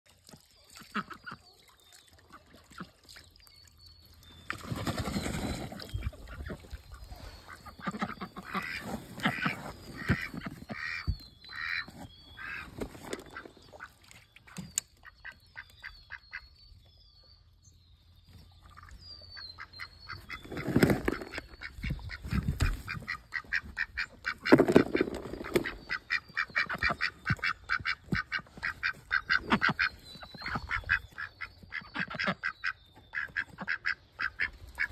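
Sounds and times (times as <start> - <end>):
ducks quacking: 0.7 - 1.4, 5.8 - 16.5, 18.8 - 34.9.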